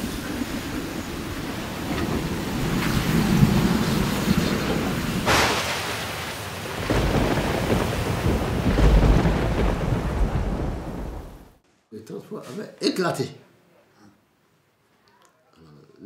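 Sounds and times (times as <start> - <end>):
low rolling thunder: 0.0 - 11.6
rain hissing: 0.0 - 11.6
sharp thunderclap: 0.0 - 11.6.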